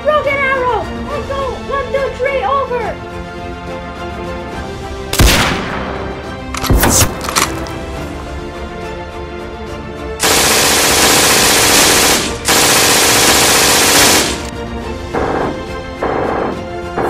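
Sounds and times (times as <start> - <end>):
orchestral music: 0.0 - 17.0
machine-gun fire: 5.2 - 5.9, 6.6 - 7.7, 10.2 - 14.5.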